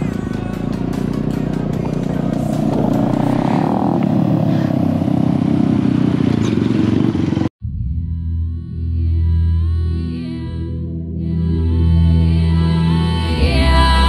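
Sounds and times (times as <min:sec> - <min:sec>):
calm background music: 0:00.0 - 0:03.8
motorcycle engines riding by: 0:00.0 - 0:07.5.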